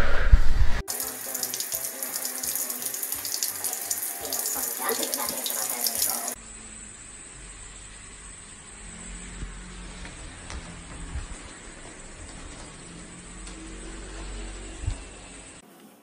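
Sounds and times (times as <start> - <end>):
tap water splashing into sink: 0.9 - 6.4.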